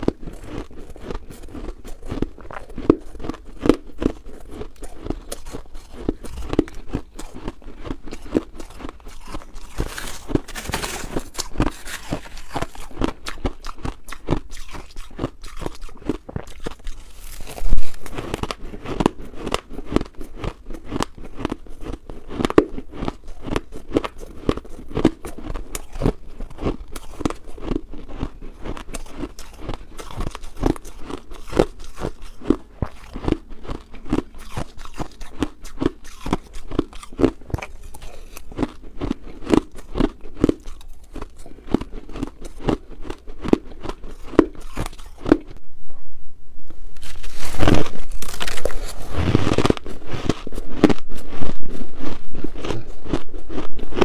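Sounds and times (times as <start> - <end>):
chewing shaved ice crunches: 0.0 - 45.6, 47.0 - 54.0.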